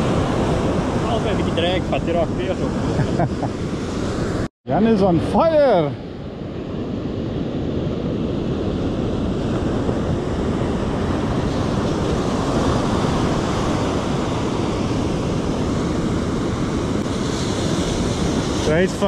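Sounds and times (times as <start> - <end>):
ocean waves breaking on beach: 0.0 - 19.0
wind buffeting microphone: 0.0 - 19.0.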